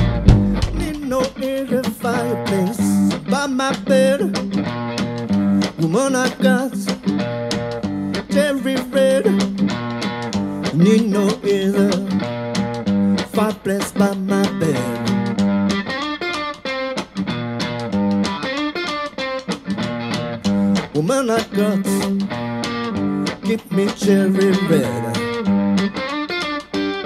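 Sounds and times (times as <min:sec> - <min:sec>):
bass line: 0:00.0 - 0:01.2, 0:02.2 - 0:03.3
drum kit beat: 0:00.0 - 0:26.7
electric guitar lead: 0:00.0 - 0:27.0.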